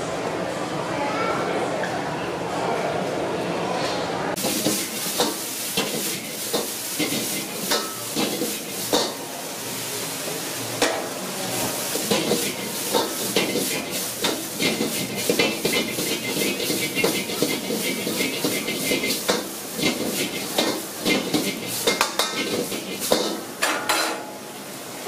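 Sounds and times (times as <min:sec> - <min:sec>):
vegetables sizzling in a wok: 0:04.3 - 0:25.0
ladle clanking against wok: 0:04.4 - 0:09.2, 0:11.8 - 0:24.4.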